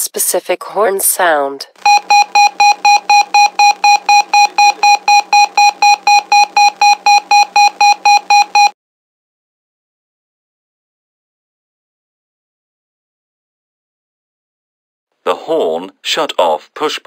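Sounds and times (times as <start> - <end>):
rapid electronic beeps: 1.8 - 8.7.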